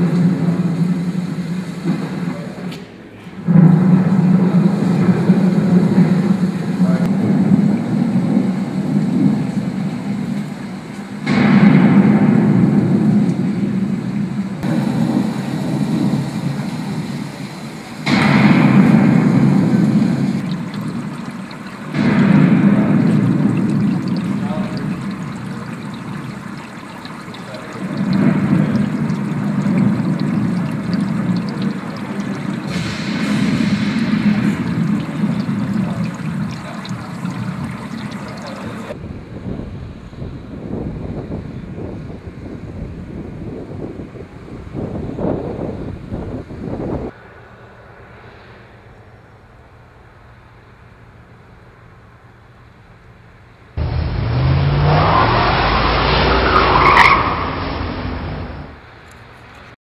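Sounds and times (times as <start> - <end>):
water running and trickling: 13.0 - 39.0
hiss of water spray: 14.6 - 39.0
car engine: 53.8 - 58.8.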